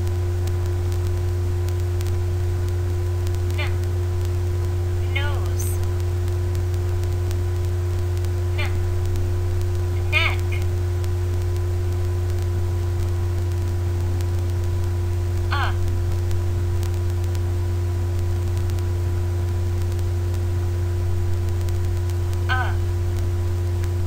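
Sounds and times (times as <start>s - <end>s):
electrical mains hum: 0.0s - 24.0s
faint voice: 3.5s - 3.8s, 5.0s - 5.9s, 8.5s - 8.9s, 10.0s - 10.7s, 15.5s - 15.9s, 22.5s - 22.9s.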